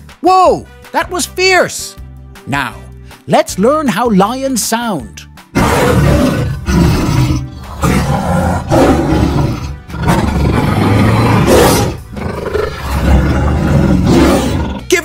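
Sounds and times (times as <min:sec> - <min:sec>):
background music: 0:00.0 - 0:15.0
lion roaring: 0:05.5 - 0:14.9.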